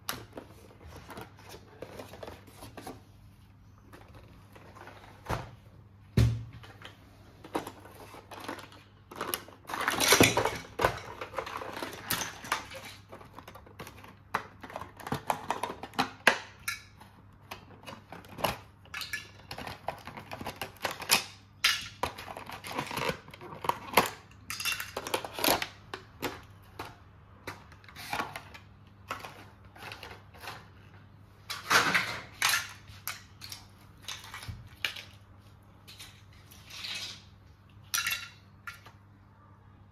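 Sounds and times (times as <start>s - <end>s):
plastic toy pieces clattering: 7.4s - 30.8s, 31.5s - 39.0s.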